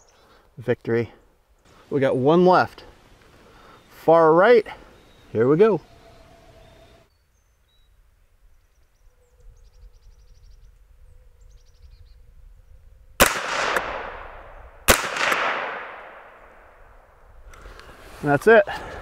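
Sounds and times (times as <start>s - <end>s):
rifle shots with echo: 13.2s - 17.1s.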